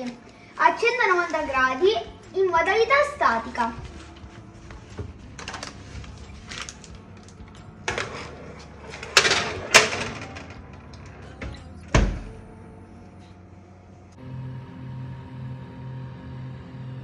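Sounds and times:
baking tray clattering on rack: 0:08.9 - 0:10.6
oven door shutting thud: 0:11.9 - 0:12.4.

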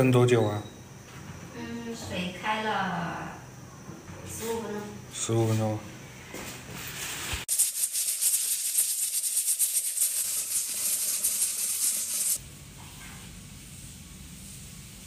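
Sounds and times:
steam hissing: 0:07.4 - 0:12.4
pressure cooker valve rattling: 0:07.5 - 0:12.4.

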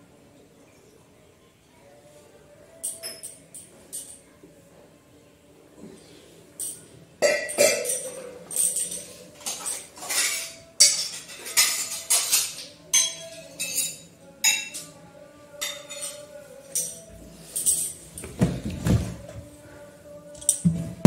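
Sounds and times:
metal cups clinking: 0:06.6 - 0:14.9, 0:15.6 - 0:18.4.

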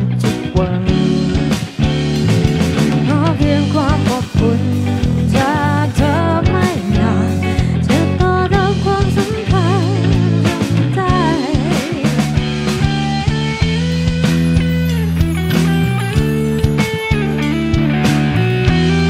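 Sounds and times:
electric bass: 0:00.0 - 0:19.0
electric guitar: 0:00.0 - 0:19.0
steady beat: 0:00.3 - 0:05.5, 0:09.5 - 0:19.0
woman singing with vibrato: 0:03.1 - 0:12.3.

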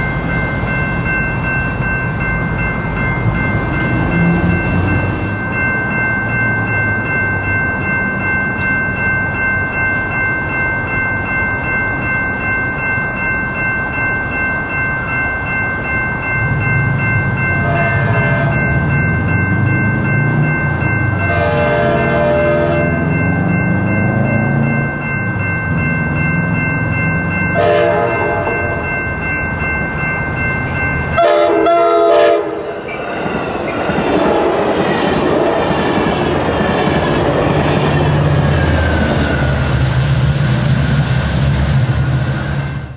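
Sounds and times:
crossing bells ringing: 0:00.0 - 0:42.9
train horn blowing: 0:17.6 - 0:18.6, 0:21.2 - 0:23.0, 0:27.6 - 0:28.5, 0:31.2 - 0:32.7
train wheels clattering on rails: 0:32.7 - 0:42.9.

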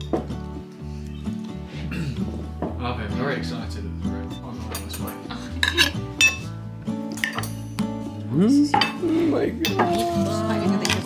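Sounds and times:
background music: 0:00.0 - 0:11.0
cutlery clinking on plates: 0:04.7 - 0:06.5, 0:09.6 - 0:10.0.

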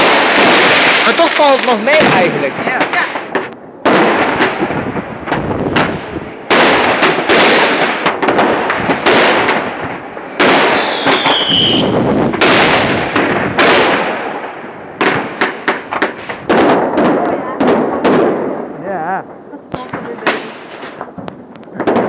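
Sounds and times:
fireworks banging and rumbling: 0:00.0 - 0:22.0.

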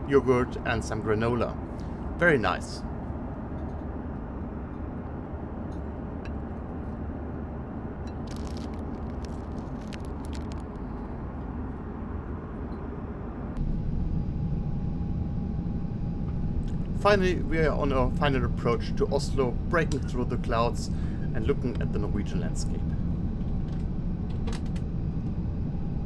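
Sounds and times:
airplane cabin rumbling hiss: 0:00.0 - 0:26.0
steady hum: 0:00.0 - 0:26.0
plastic packet crinkling: 0:08.3 - 0:10.6.

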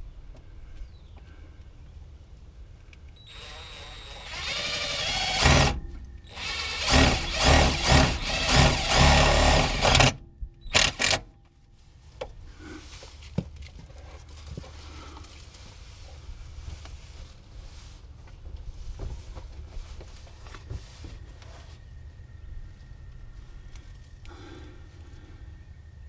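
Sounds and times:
cordless drill whining in bursts: 0:03.2 - 0:11.2.

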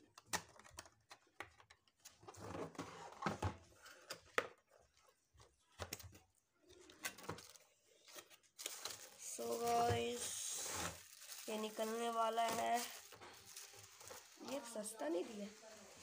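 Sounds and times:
cardboard scraping: 0:09.6 - 0:15.8.

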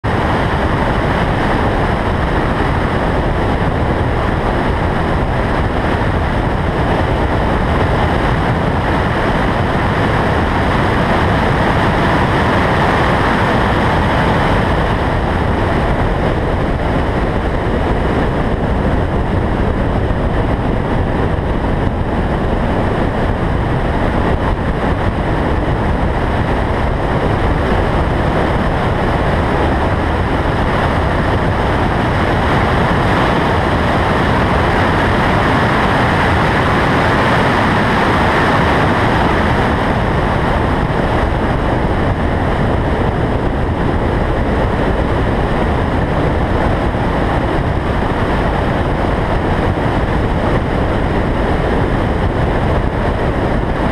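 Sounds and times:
wind and road noise: 0:00.0 - 0:53.9.

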